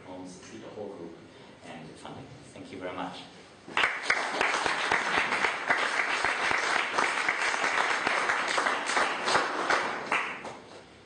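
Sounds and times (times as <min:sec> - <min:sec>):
audience applause: 0:03.7 - 0:10.5.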